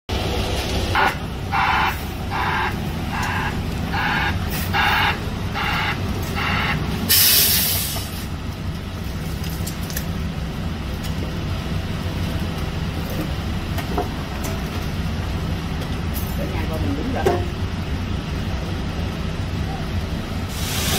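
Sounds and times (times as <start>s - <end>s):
diesel engine running: 0.1s - 20.9s
backup alarm beeping: 1.0s - 6.9s
air brake hiss: 7.1s - 8.3s, 20.5s - 20.9s.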